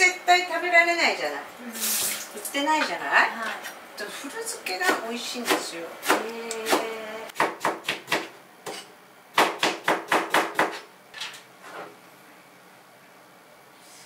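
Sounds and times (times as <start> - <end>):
knife chopping on cutting board: 4.8 - 10.9.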